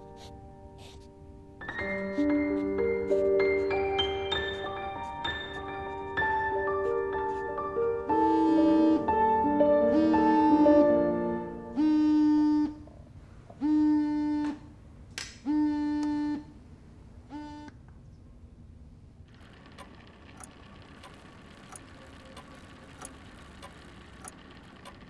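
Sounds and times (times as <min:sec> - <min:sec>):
sustained musical note: 0:03.8 - 0:11.8.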